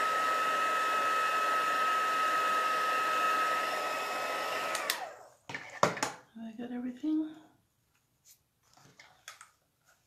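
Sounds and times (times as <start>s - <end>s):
heat tool fan whine: 0.0s - 5.3s.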